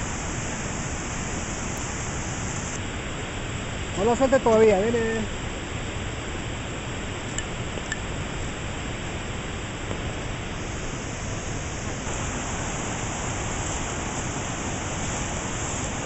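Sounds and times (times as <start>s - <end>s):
waterfall rushing: 0.0s - 2.8s, 8.6s - 16.0s.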